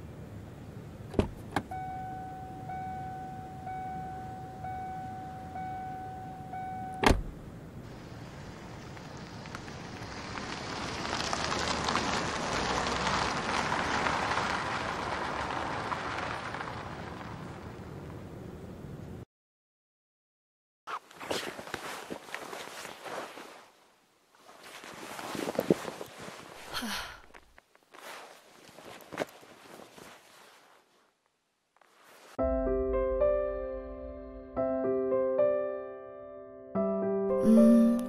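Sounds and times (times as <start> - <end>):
car door latch clicking: 1.1 - 1.7, 7.0 - 7.4
car door shutting: 1.1 - 2.0, 6.9 - 7.4
electronic warning chime: 1.7 - 7.1
car driving past: 9.2 - 17.8.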